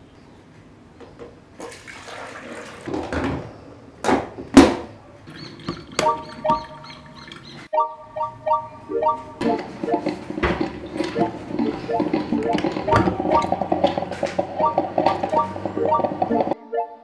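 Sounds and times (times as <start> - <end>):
water pouring: 1.6 - 3.0
short repeating melody: 7.7 - 10.2, 14.6 - 17.0.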